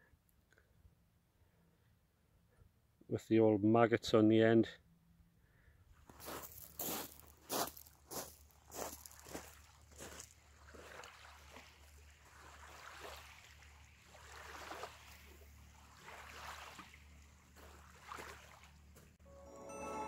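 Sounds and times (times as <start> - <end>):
small waves lapping pebble shore: 6.1 - 19.2.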